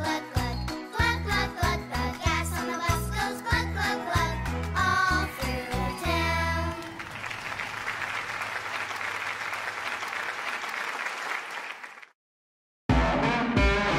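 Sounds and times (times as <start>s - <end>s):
audience applause: 6.5s - 12.1s.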